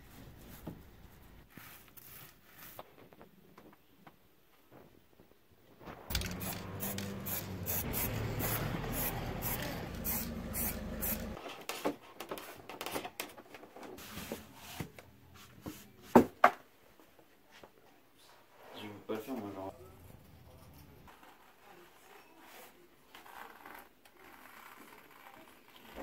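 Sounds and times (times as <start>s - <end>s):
aerosol spray can hissing: 6.1s - 11.4s.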